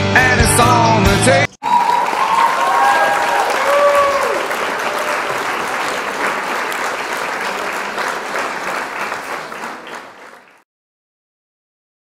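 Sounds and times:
crowd applauding: 1.6s - 10.6s.

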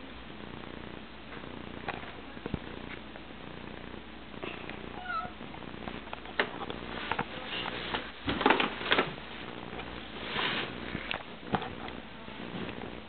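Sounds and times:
cat meowing: 4.9s - 5.4s.

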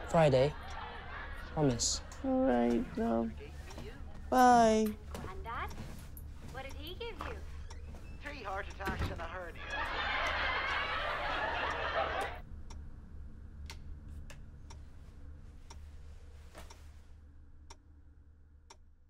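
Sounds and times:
television chuckling and chatter: 0.0s - 4.2s, 8.2s - 12.4s
low steady hum: 0.0s - 19.0s.

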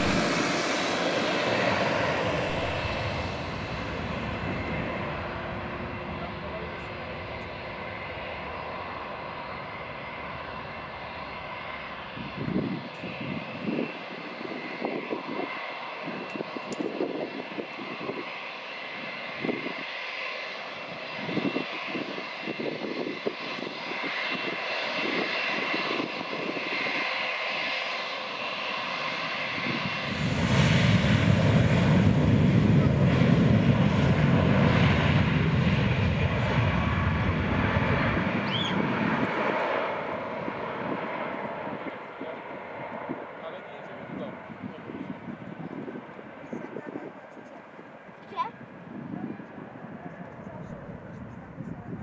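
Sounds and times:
low rumbling pulses: 0.0s - 7.1s
jet engines rushing: 0.0s - 52.0s.

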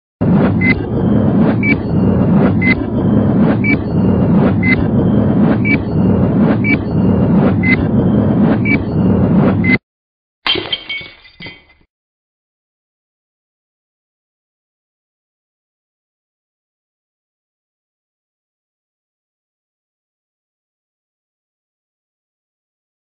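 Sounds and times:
low rumble: 0.2s - 9.8s.

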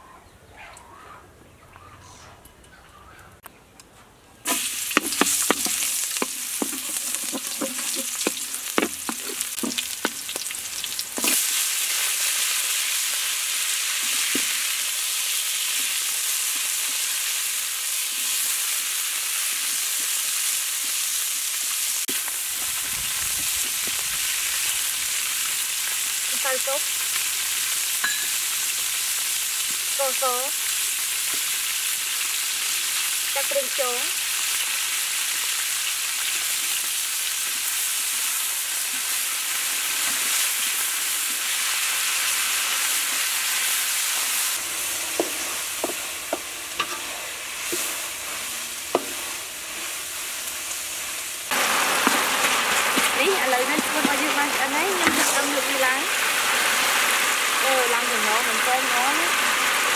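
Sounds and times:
food sizzling in hot oil: 4.4s - 59.9s
spatula scraping a wok: 4.5s - 12.5s, 38.9s - 56.8s.

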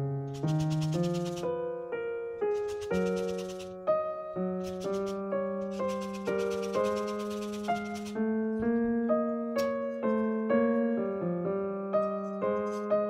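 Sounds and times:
piano melody: 0.0s - 13.0s
rapid scratchy rasping: 0.3s - 1.6s, 2.5s - 3.8s, 4.6s - 8.2s.

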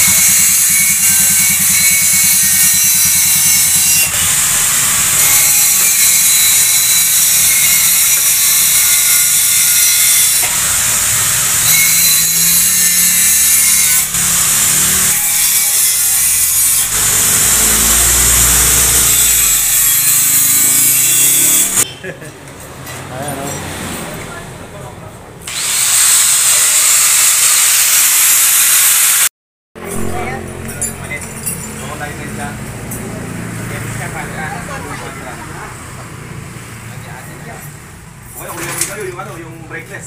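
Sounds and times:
power tool harsh grinding: 0.0s - 21.9s, 25.5s - 35.0s.

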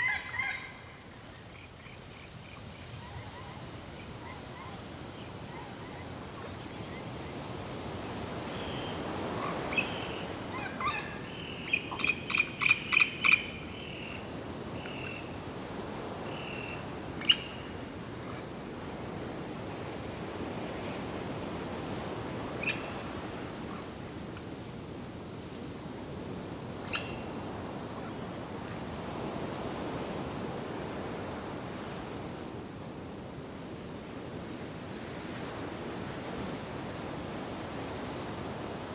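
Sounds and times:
bird calling: 0.0s - 1.9s, 8.6s - 14.2s
sea surf: 0.0s - 38.9s.

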